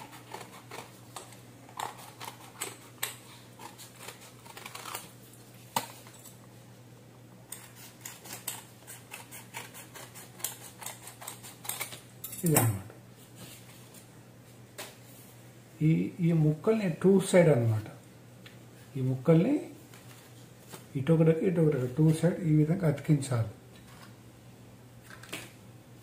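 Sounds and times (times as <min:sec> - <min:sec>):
scissors snipping paper: 0:00.0 - 0:05.1, 0:07.5 - 0:12.0.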